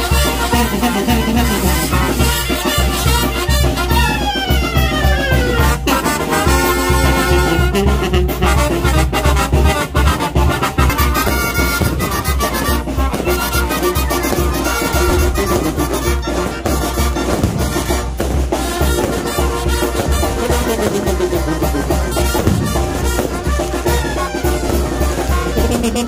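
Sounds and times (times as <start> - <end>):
music with brass and drums: 0.0 - 26.0
pulsing bass beat: 20.0 - 23.5, 24.6 - 26.0.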